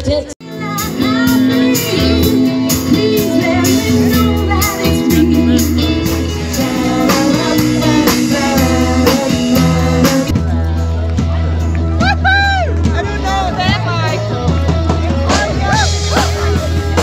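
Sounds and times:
bass: 0.0s - 17.0s
person singing: 0.4s - 10.4s
steady drum beat: 0.5s - 17.0s.

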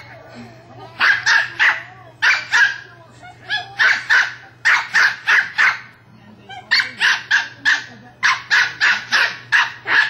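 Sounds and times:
small dog barking: 1.0s - 2.9s, 3.5s - 5.9s, 6.7s - 10.0s.

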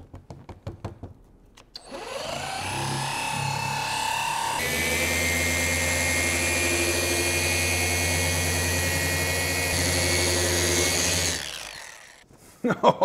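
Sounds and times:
polisher motor humming: 1.8s - 12.2s.

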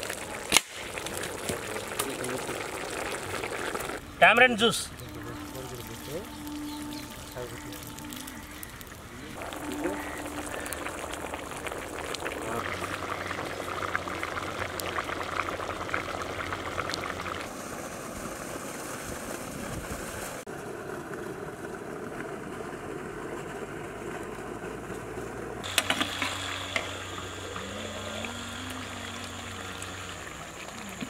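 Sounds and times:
curry boiling with bubbles popping: 0.0s - 4.1s, 5.0s - 17.6s, 25.6s - 31.0s
water running and trickling: 0.0s - 17.5s, 25.6s - 31.0s.

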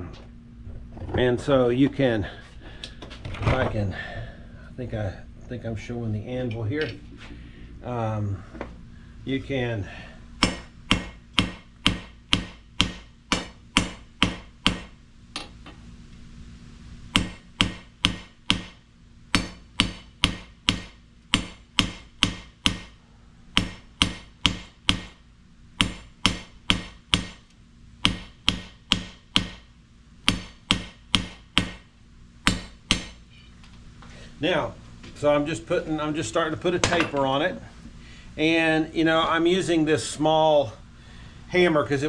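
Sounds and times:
hammer striking steel on anvil: 10.4s - 15.6s, 17.2s - 23.0s, 23.6s - 25.2s, 25.8s - 27.4s, 28.0s - 29.7s, 30.3s - 31.8s, 32.4s - 33.5s.

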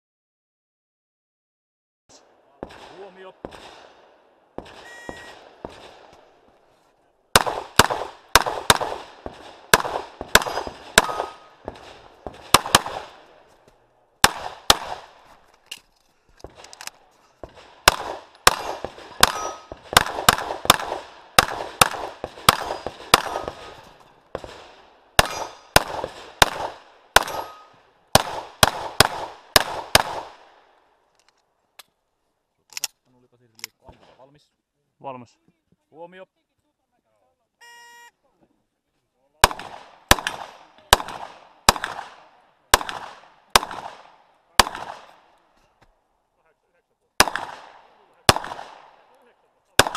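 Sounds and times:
pistol shots: 2.2s - 6.4s, 7.3s - 13.4s, 14.2s - 15.3s, 16.4s - 30.7s, 39.4s - 45.4s, 47.2s - 49.2s
electronic timer beep: 4.8s - 5.4s, 37.6s - 38.1s
steel targets clanging: 18.6s - 19.8s, 27.2s - 27.8s.

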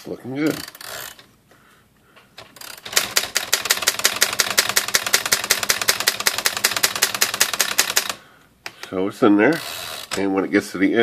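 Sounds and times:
manual typewriter keystrokes: 2.4s - 8.2s.

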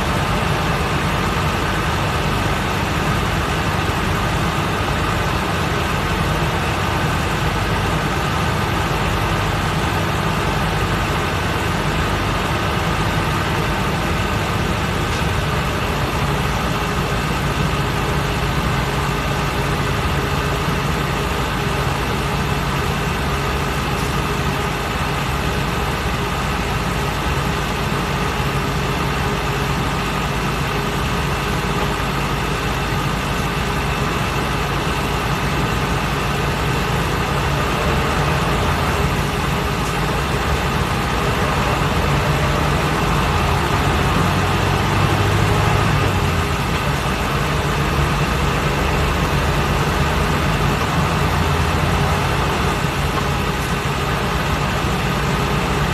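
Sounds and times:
bus engine hum: 0.0s - 55.9s
road and tyre noise: 0.0s - 55.9s.

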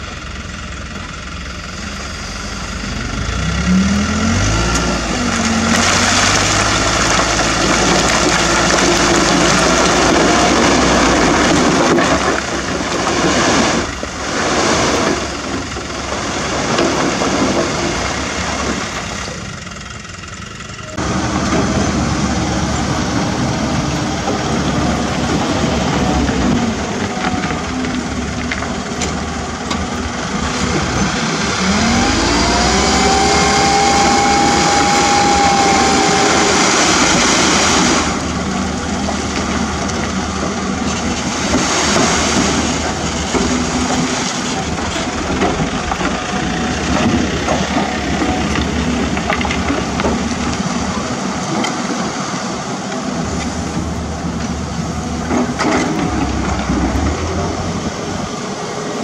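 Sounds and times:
diesel engines running: 0.0s - 59.0s
rocks rattling from truck bed: 5.5s - 19.3s, 38.8s - 51.0s
hydraulic hoist whine: 29.1s - 38.8s.

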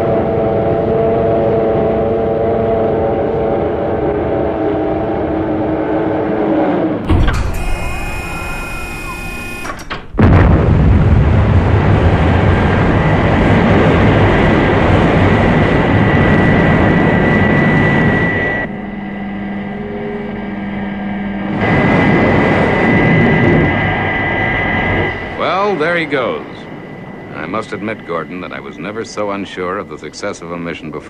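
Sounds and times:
rocket engines blasting: 0.0s - 31.0s
cockpit hum: 6.9s - 31.0s.

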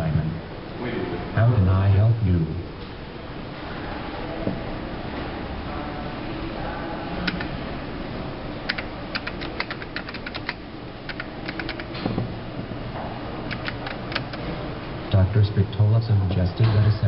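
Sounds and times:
typing on metal keyboard: 7.2s - 7.5s, 8.7s - 12.0s, 13.5s - 14.4s.

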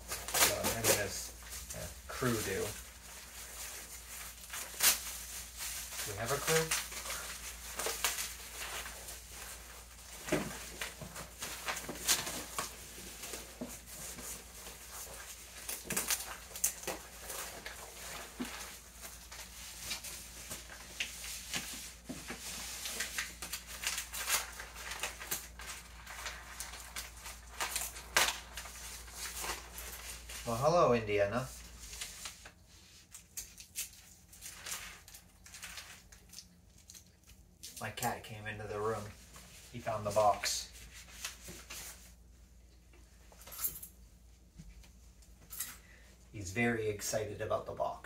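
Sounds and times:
paper crinkling and tearing: 0.0s - 30.7s, 31.4s - 38.0s.

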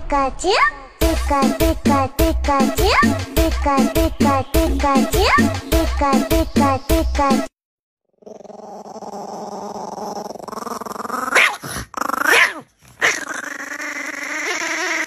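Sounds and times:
puppy growling: 8.2s - 15.0s
puppy yipping: 11.3s - 11.7s.

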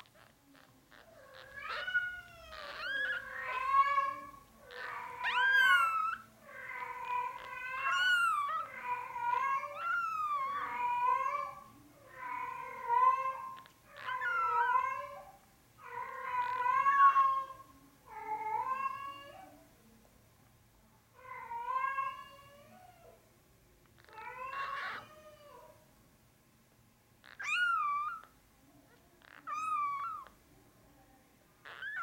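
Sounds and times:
kitten mewing: 0.0s - 11.6s, 27.3s - 28.3s, 29.2s - 30.4s.

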